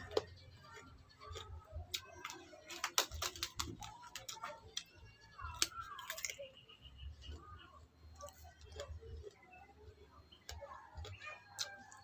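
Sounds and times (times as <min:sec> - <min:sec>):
chewing crunchy cucumber: 0:00.0 - 0:12.0.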